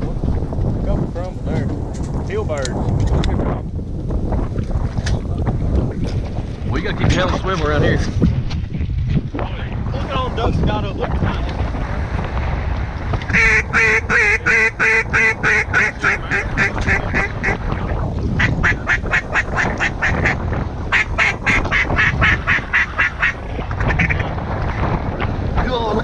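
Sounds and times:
wind rumble on microphone: 0:00.0 - 0:26.0
duck call quacks: 0:13.3 - 0:17.6, 0:18.4 - 0:24.2.

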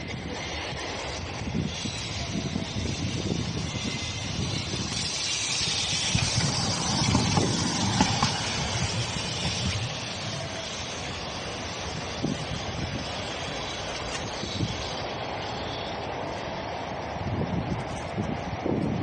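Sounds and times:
tram passing: 0:00.0 - 0:19.0
short knocks of passing tram: 0:06.1 - 0:09.1.

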